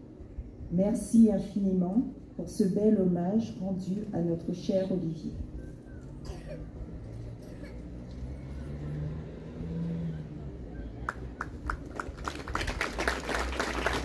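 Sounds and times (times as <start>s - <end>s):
low engine hum: 3.2s - 14.0s
crowd applauding: 11.1s - 14.0s.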